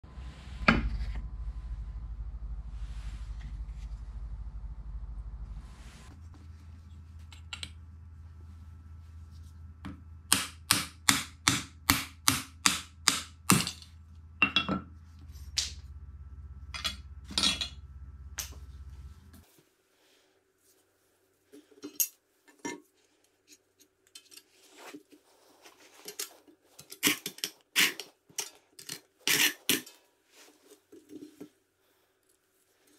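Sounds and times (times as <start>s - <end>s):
hammer striking hatchet: 10.3s - 13.8s.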